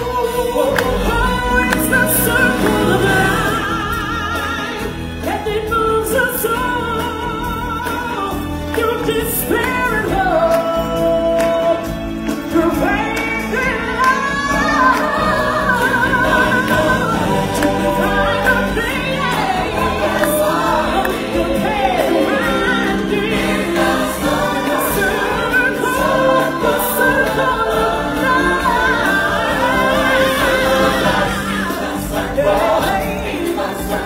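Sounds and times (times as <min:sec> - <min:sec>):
choir singing: 0:00.0 - 0:34.0
musical backing: 0:00.0 - 0:34.0.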